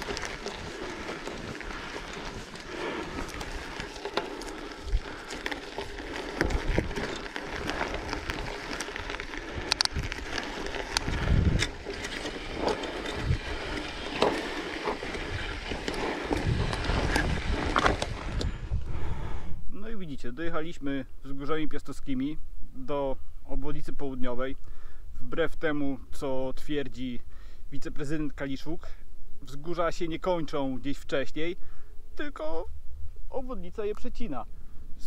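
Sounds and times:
bicycle rolling over dirt: 0.0 - 19.6
wind buffeting microphone: 0.0 - 19.6.

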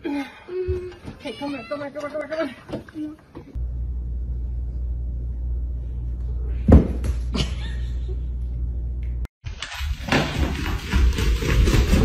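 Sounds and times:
steady low hum: 3.5 - 9.3.

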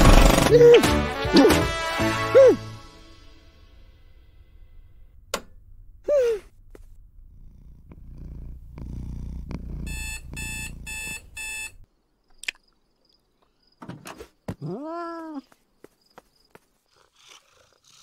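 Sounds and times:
cat purring: 6.4 - 11.8, 16.9 - 18.0
alarm clock beeping: 9.9 - 11.8
cat meowing: 14.6 - 15.5.

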